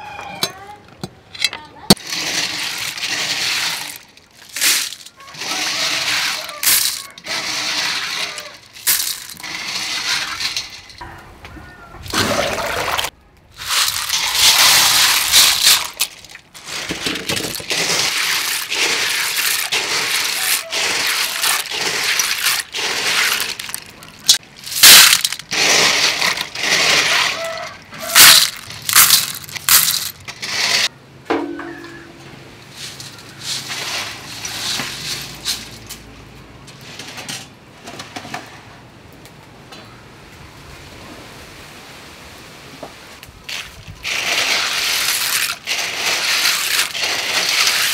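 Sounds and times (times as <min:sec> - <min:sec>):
snail shells clattering: 0:02.0 - 0:11.0, 0:12.9 - 0:30.9, 0:43.5 - 0:47.9.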